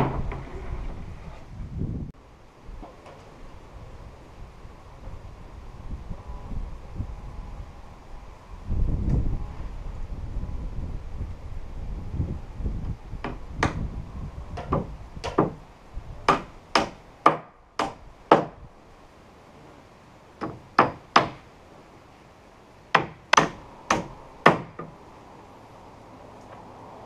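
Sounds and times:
hammer driving nails into wood: 0:14.6 - 0:15.6, 0:16.3 - 0:18.6, 0:23.0 - 0:24.9.

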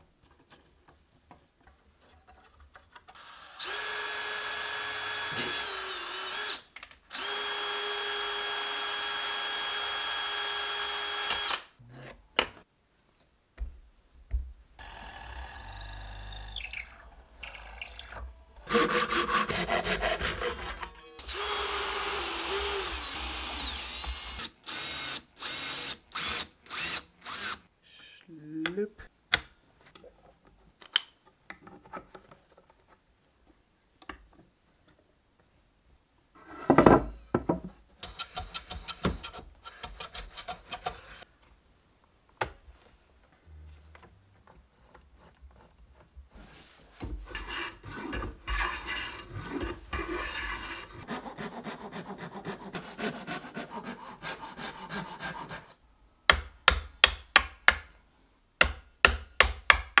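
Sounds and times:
chisel cutting wood: 0:03.2 - 0:11.6, 0:14.8 - 0:27.6, 0:47.3 - 0:57.8.

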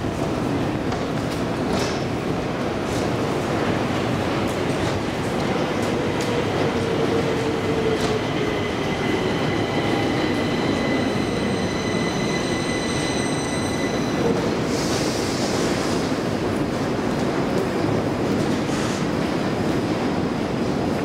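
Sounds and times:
train rumbling on rails: 0:00.0 - 0:21.0
high ringing wheel squeal: 0:10.5 - 0:14.3.

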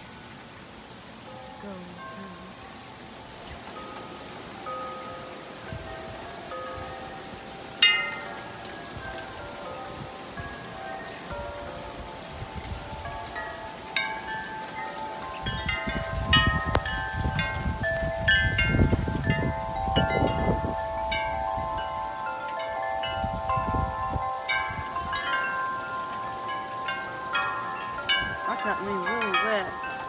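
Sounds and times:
metal tube wind chime ringing: 0:03.7 - 0:30.0
wind buffeting microphone: 0:05.6 - 0:07.6, 0:08.8 - 0:13.7, 0:15.0 - 0:30.0.

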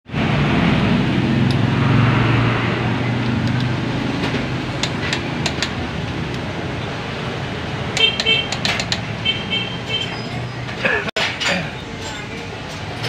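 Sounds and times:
engine hum: 0:00.1 - 0:11.1
socket ratchet clicking: 0:08.0 - 0:09.1.

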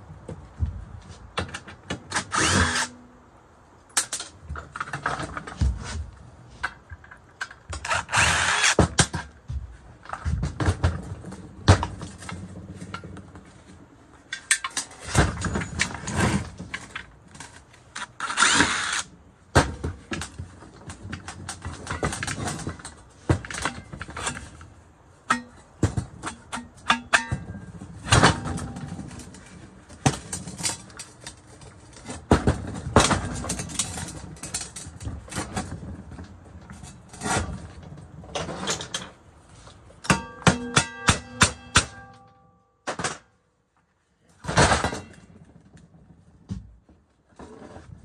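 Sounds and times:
metal knocks and scrapes: 0:25.3 - 0:42.3.

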